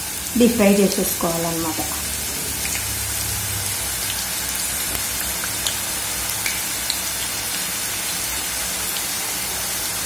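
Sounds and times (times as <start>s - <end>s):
dough deep-frying in hot oil: 0.0s - 10.0s.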